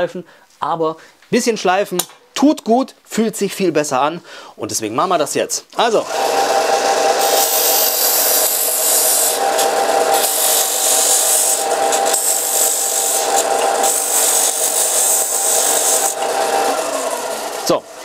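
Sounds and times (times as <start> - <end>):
electric sander motor hum: 6.0 - 18.0
wood hissing on sandpaper: 7.2 - 18.0.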